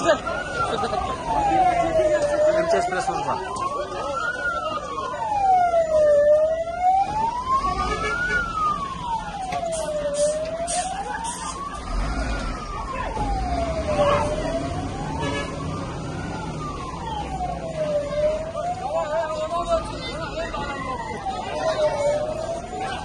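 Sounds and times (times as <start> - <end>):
crowd noise: 0.0 - 23.0
fire engine siren wailing: 0.0 - 23.0.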